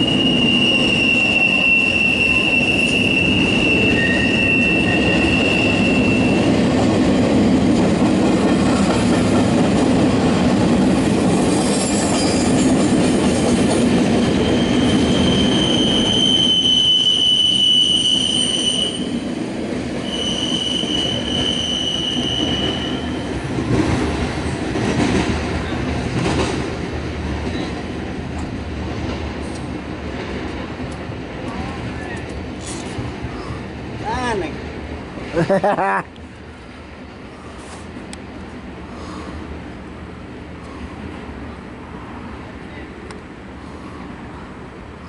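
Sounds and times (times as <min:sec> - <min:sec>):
high wheel squeals: 0:00.0 - 0:06.6, 0:11.7 - 0:12.7, 0:14.4 - 0:19.2, 0:20.0 - 0:23.3
train wheels rumbling on rail: 0:00.0 - 0:45.0.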